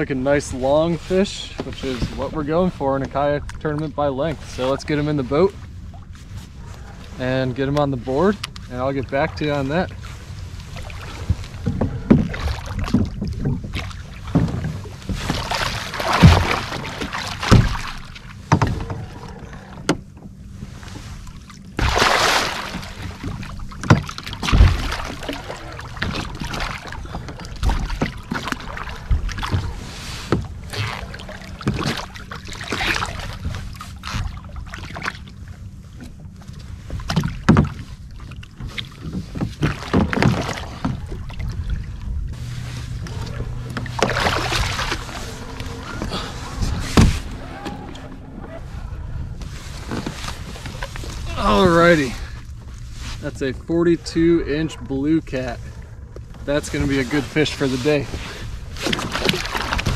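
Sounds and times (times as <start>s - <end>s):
fish splashing at water surface: 21.8s - 29.6s, 42.6s - 48.0s.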